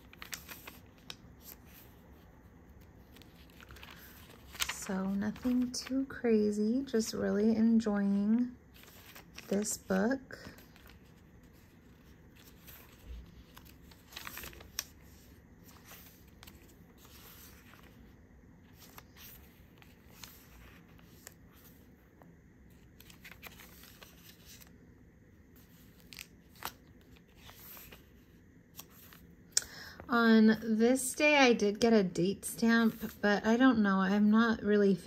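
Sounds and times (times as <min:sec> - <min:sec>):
paper pages turning: 0:00.0 - 0:06.2, 0:08.4 - 0:22.0, 0:22.7 - 0:24.8, 0:25.5 - 0:29.3, 0:32.8 - 0:33.2.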